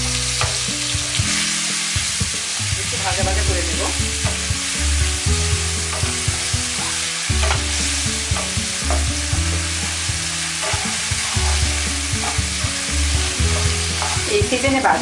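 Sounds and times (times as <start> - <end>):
potatoes sizzling in oil: 0.0 - 15.0
wooden spatula scraping pan: 3.3 - 15.0.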